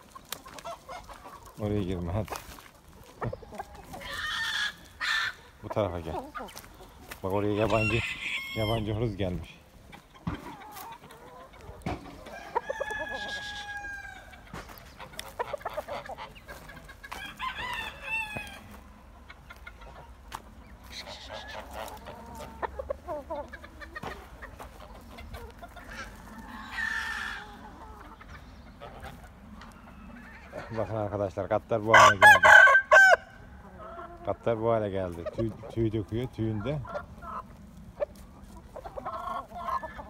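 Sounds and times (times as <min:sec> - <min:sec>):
chickens clucking: 0:00.0 - 0:40.0
roosters crowing: 0:03.4 - 0:20.2, 0:20.8 - 0:34.2.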